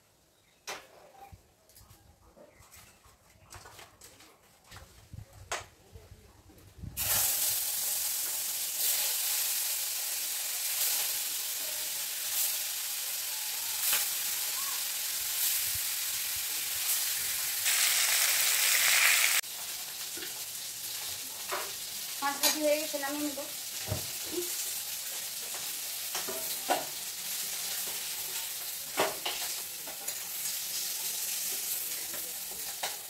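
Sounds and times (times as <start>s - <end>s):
fish sizzling in hot oil: 7.0s - 33.0s.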